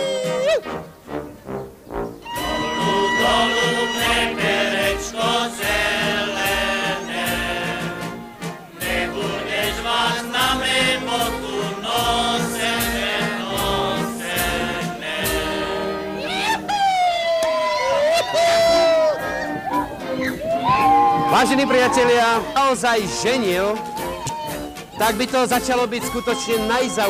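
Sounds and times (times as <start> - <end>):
instrumental accompaniment: 0.2 - 16.7, 18.3 - 27.0
men singing together: 2.4 - 16.2.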